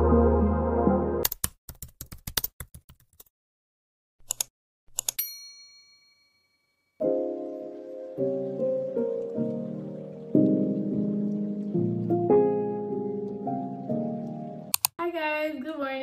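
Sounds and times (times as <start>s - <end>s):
music: 0.0s - 1.2s, 7.0s - 14.7s
bell ding: 5.2s - 6.9s
typing key clicks: 14.7s - 15.0s.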